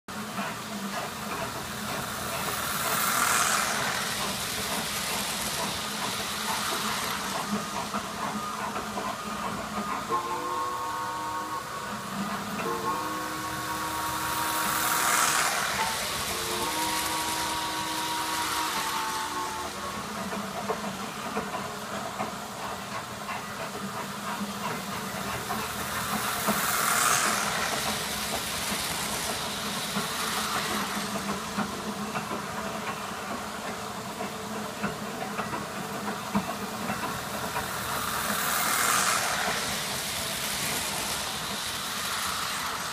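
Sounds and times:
toy train motor and wheels rumble: 0:00.1 - 0:42.9
toy train whistle blasts: 0:08.2 - 0:20.1.

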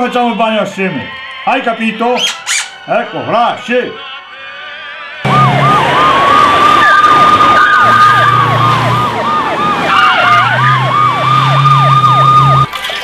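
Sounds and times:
police siren wail: 0:02.1 - 0:13.0
police siren fast yelp: 0:04.4 - 0:13.0.

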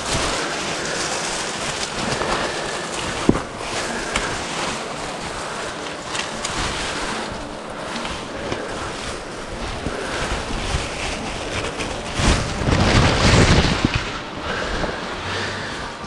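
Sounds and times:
wind buffeting microphone: 0:08.7 - 0:15.2.

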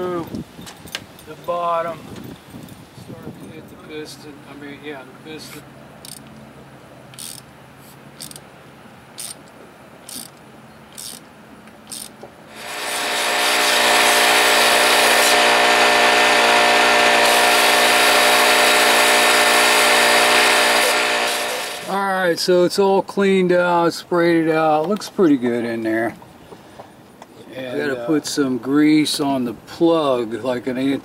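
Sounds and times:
short scraping clicks: 0:07.1 - 0:08.5
shop vacuum whining: 0:12.5 - 0:22.0.

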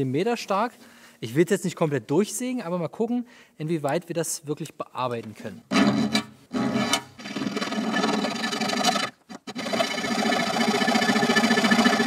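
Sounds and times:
file rasping across steel sheet: 0:05.7 - 0:12.0.

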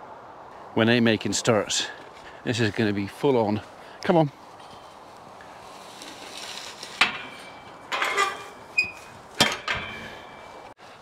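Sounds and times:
metal gate clanking and rattling: 0:07.0 - 0:10.6.

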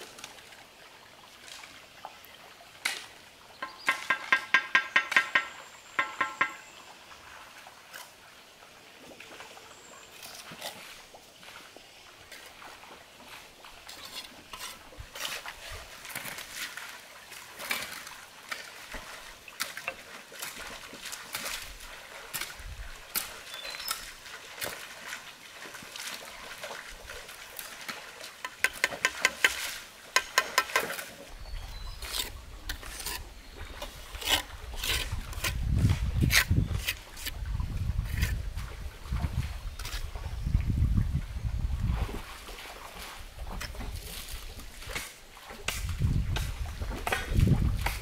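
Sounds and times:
trowel tapping bricks: 0:03.6 - 0:06.6, 0:28.4 - 0:29.6, 0:30.2 - 0:30.9
trowel scraping mortar: 0:13.9 - 0:15.5, 0:31.8 - 0:37.3, 0:38.0 - 0:38.4.

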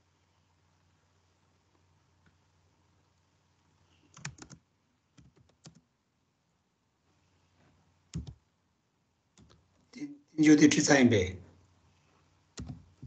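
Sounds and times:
faint keyboard typing: 0:03.9 - 0:05.9, 0:07.6 - 0:08.5, 0:09.3 - 0:10.0, 0:12.5 - 0:13.0.

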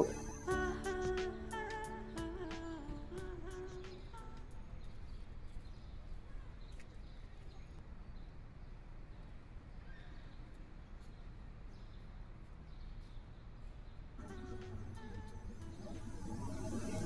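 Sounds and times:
soft background music: 0:00.0 - 0:05.7, 0:14.2 - 0:17.0.

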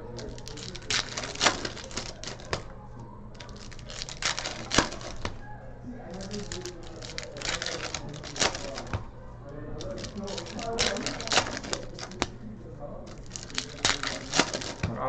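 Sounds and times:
cards clicking and tapping on table: 0:00.1 - 0:02.7, 0:03.4 - 0:05.4, 0:06.2 - 0:09.1.

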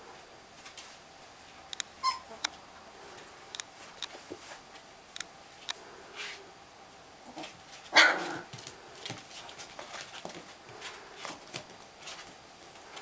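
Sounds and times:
puppies scratching and rustling: 0:00.5 - 0:01.6, 0:07.3 - 0:13.0
puppy barking: 0:07.9 - 0:08.4.

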